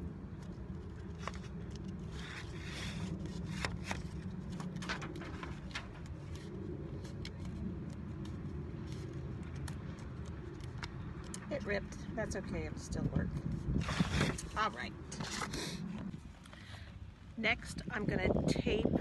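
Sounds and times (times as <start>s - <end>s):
low background rumble: 0.0s - 19.0s
paper crinkling as it is folded: 1.0s - 10.9s.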